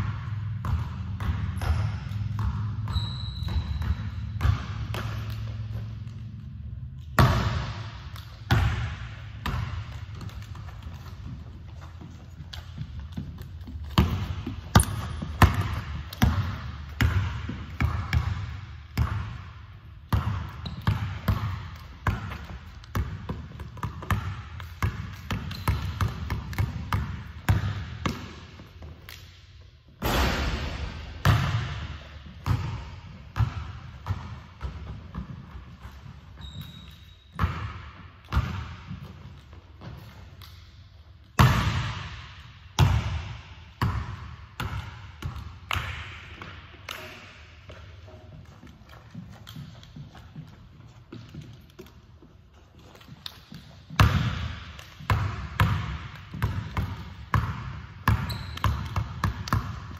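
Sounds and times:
basketball bouncing on hardwood floor: 0:00.0 - 0:28.9, 0:30.0 - 0:40.5, 0:41.4 - 0:46.6, 0:47.7 - 0:52.0, 0:52.8 - 0:59.9.

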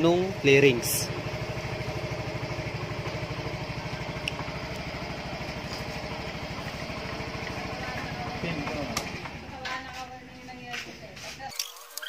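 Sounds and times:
scooter engine running: 0:00.0 - 0:12.0.

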